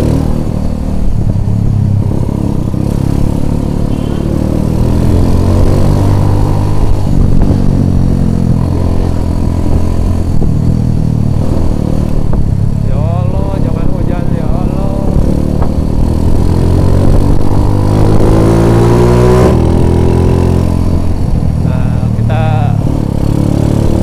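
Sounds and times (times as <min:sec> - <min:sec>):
small motorcycle engine running: 0:02.0 - 0:06.3.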